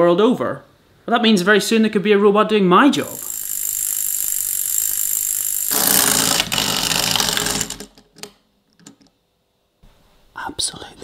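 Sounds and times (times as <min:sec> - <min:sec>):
clockwork toy whirring: 0:03.0 - 0:08.0.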